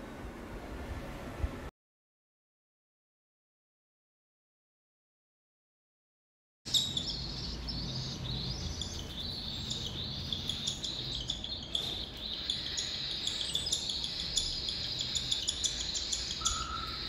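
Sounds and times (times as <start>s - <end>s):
chicks begging calls: 6.7s - 17.0s.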